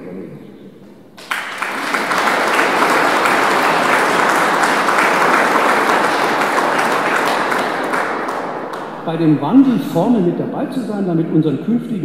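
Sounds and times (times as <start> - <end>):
audience applauding: 1.2 - 10.7.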